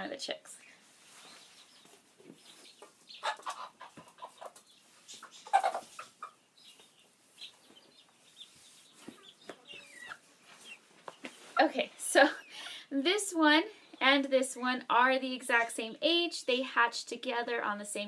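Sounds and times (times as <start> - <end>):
chickens clucking: 0.9 - 12.9.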